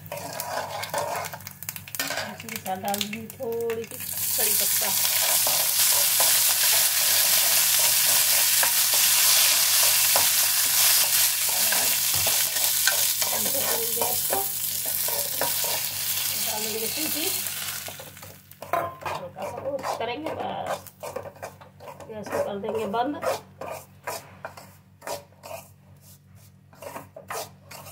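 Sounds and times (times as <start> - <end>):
ladle scraping a pan: 0.0 - 2.3, 18.6 - 27.9
food sizzling in hot oil: 0.0 - 18.9.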